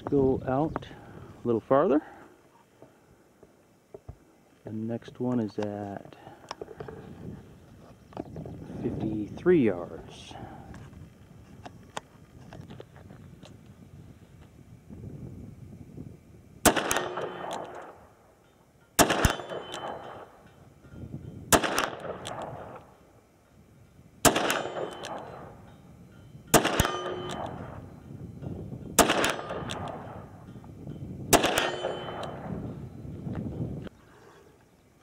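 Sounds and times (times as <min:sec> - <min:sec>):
revolver gunshots with echo: 0:16.6 - 0:18.1, 0:19.0 - 0:20.4, 0:21.5 - 0:22.9, 0:24.2 - 0:25.6, 0:26.5 - 0:27.8, 0:29.0 - 0:30.4, 0:31.3 - 0:32.6
steel target ringing: 0:16.9 - 0:23.0, 0:24.0 - 0:33.0.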